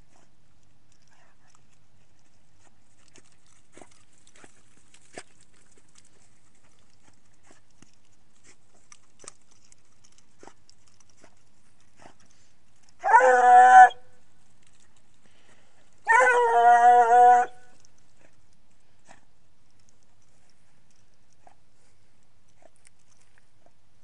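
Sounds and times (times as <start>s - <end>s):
hound baying: 12.0s - 14.8s, 15.4s - 18.4s.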